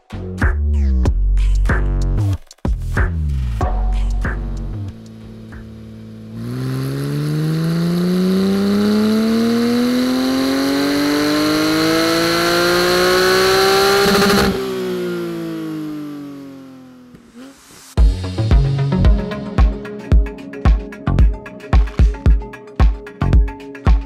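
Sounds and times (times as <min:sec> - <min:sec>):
engine winding down: 0:04.2 - 0:18.0
car engine revving on dyno: 0:04.8 - 0:18.0.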